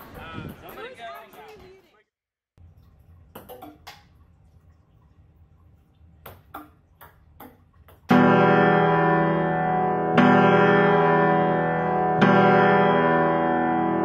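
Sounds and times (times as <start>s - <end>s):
ping-pong ball bouncing clicks: 6.2s - 8.1s
keyboard music with held notes: 8.1s - 14.0s.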